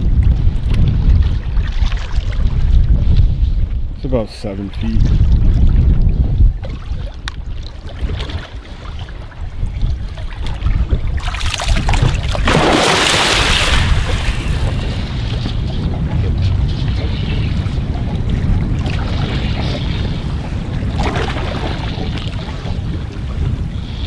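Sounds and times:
steady low rumble: 0.0 - 24.0
wind buffeting microphone: 0.0 - 24.0
water washing against boat hull: 5.2 - 24.0.

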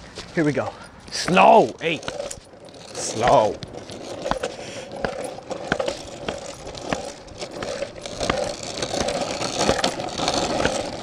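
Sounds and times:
steady background hum: 0.0 - 11.0
dog harness and tags jingling: 0.7 - 8.3.

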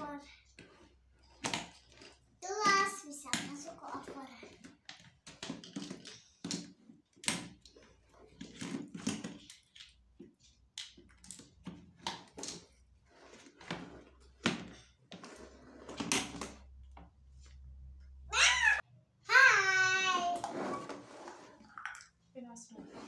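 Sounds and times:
plastic toy parts knocking and clicking: 1.3 - 12.8.

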